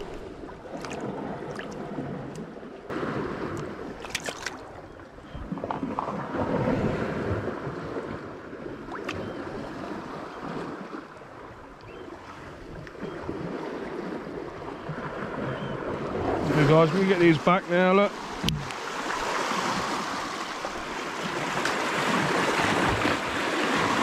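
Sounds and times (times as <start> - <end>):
surf washing over rocks: 16.2 - 24.0.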